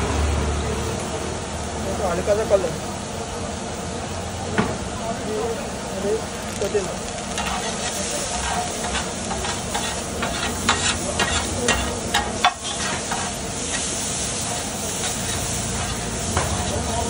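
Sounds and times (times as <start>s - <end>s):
food sizzling in hot oil: 0.0s - 17.0s
spatula knocking and scraping pan: 7.4s - 16.8s.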